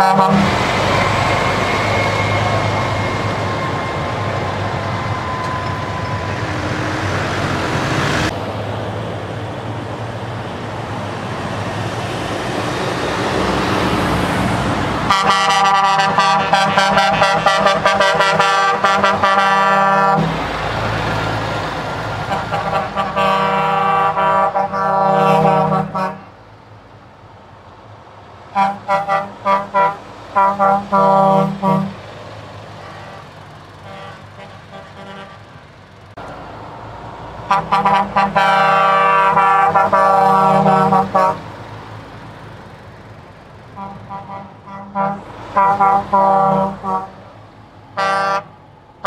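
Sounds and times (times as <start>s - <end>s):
truck horn multi-note chord: 0.0s - 3.8s, 15.1s - 20.5s, 22.2s - 26.4s, 28.6s - 32.0s, 32.8s - 35.6s, 37.5s - 41.6s, 43.8s - 47.3s, 48.0s - 48.6s
truck diesel engines running: 0.0s - 49.0s.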